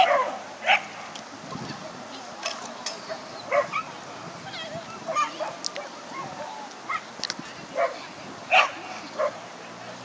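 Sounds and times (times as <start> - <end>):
dog barking: 0.0 - 0.9, 3.5 - 3.9, 7.8 - 9.4.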